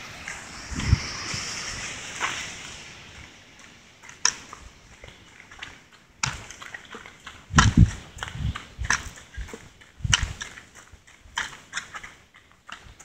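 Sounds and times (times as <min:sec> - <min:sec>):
river rushing: 0:00.0 - 0:08.8
footsteps on gravel: 0:00.0 - 0:13.0.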